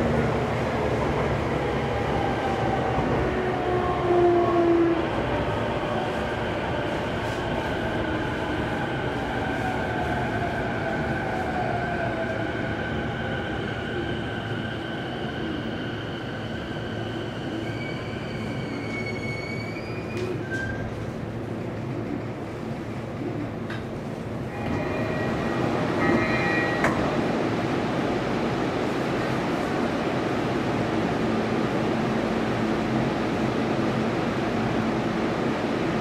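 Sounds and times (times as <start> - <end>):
subway drive whine: 0.0 - 36.0.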